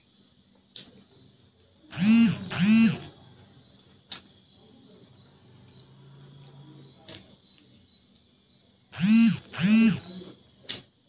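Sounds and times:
faint high whine: 0:01.9 - 0:03.2, 0:09.0 - 0:10.3
faint low hum: 0:01.9 - 0:03.2, 0:08.9 - 0:10.3.

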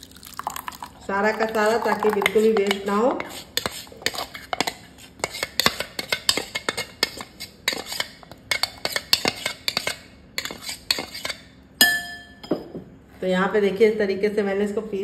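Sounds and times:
metal spoon scraping steel jar: 0:01.6 - 0:11.5.

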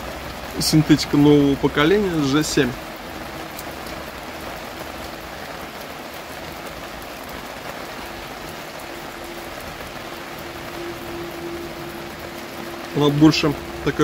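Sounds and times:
raindrops ticking: 0:00.0 - 0:14.0
steady rain hiss: 0:00.0 - 0:14.0.

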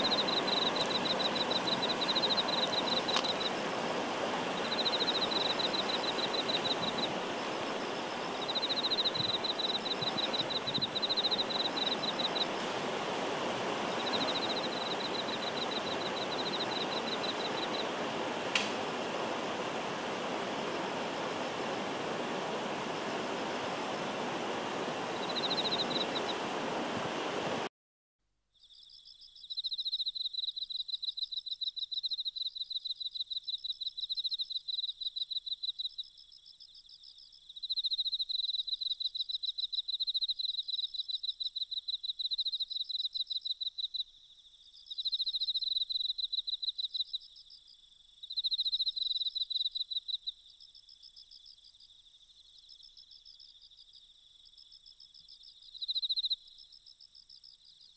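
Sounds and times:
insect trilling: 0:00.0 - 0:19.1, 0:23.0 - 0:26.4.

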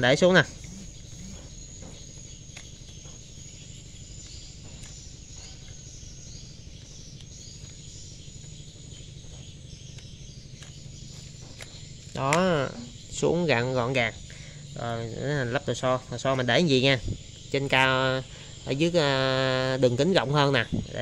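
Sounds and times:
constant high thin tone: 0:00.0 - 0:21.0
low hum: 0:00.0 - 0:21.0.

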